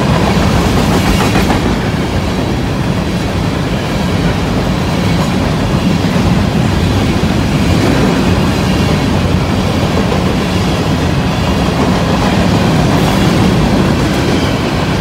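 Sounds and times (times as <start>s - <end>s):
train wheels on rails: 0.0s - 15.0s.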